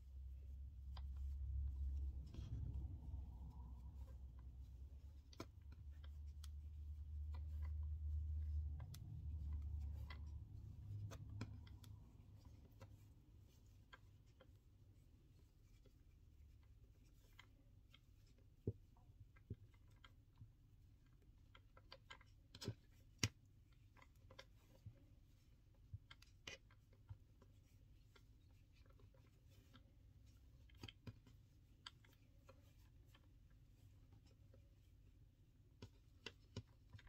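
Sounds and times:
cord rustling: 0:00.0 - 0:20.2.

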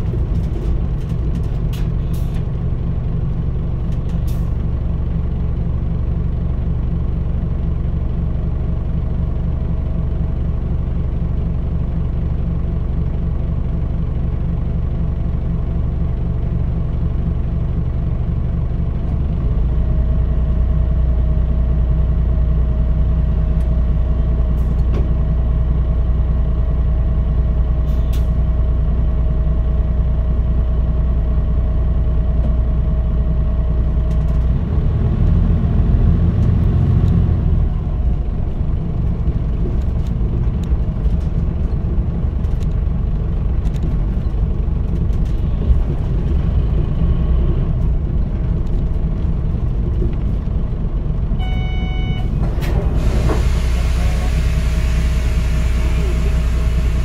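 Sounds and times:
bus engine idling and revving: 0:00.0 - 0:57.0
short electronic tone: 0:51.4 - 0:52.4.

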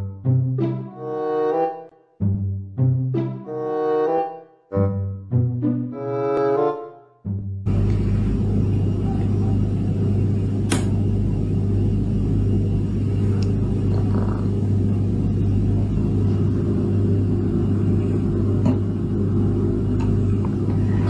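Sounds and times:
loud low drone: 0:07.3 - 0:21.0
sharp click: 0:10.7 - 0:11.0.

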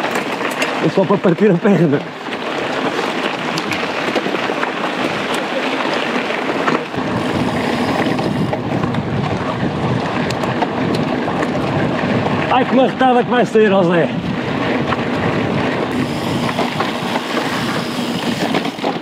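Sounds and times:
bike tyres rushing on dirt: 0:00.0 - 0:19.0
wind buffeting a microphone: 0:06.4 - 0:19.0.

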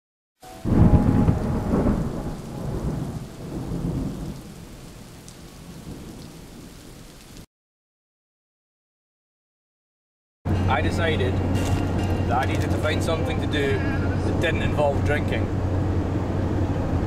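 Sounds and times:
loud deep rumble: 0:00.6 - 0:04.4, 0:10.5 - 0:17.0.

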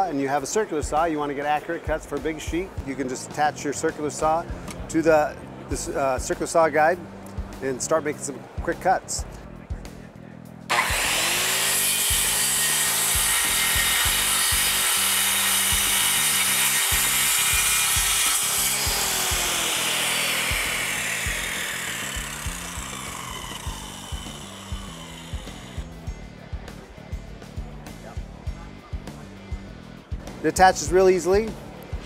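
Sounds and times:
circular saw cutting plywood: 0:10.7 - 0:25.9.

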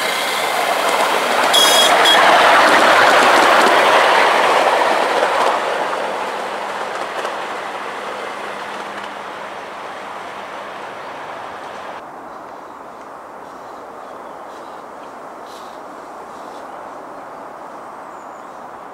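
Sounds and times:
miniature locomotive passing: 0:00.0 - 0:12.0.

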